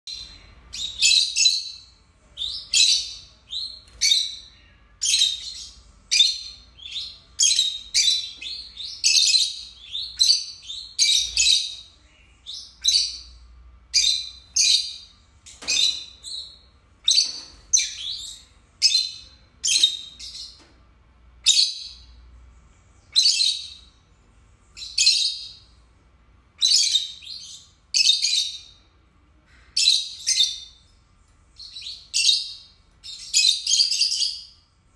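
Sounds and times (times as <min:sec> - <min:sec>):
lovebirds chirping shrilly: 0:00.1 - 0:20.6, 0:31.6 - 0:34.6.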